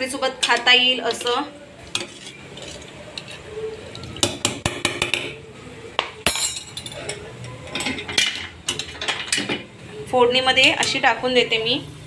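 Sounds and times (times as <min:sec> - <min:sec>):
steel utensils clinking on a pot: 0:00.1 - 0:05.4, 0:06.2 - 0:09.7.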